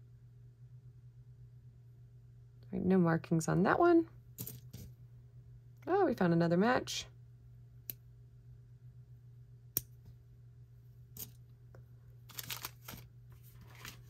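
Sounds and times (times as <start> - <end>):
low steady hum: 0.0 - 14.0
jewelry rustling clatter: 4.4 - 4.9, 12.3 - 14.0.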